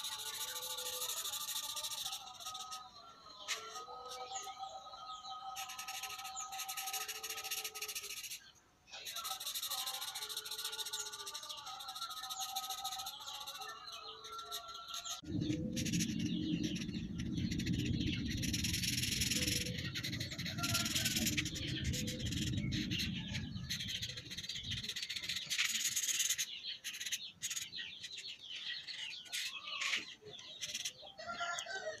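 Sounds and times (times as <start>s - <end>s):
marker scrubbing on paper: 0.0s - 2.8s, 5.6s - 15.2s, 15.8s - 23.1s, 23.8s - 28.3s
birds chirping: 0.0s - 32.0s.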